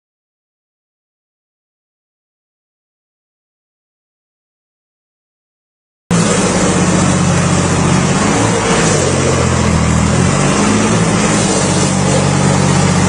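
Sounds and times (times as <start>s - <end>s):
tractor diesel engine at high revs: 6.1s - 13.0s.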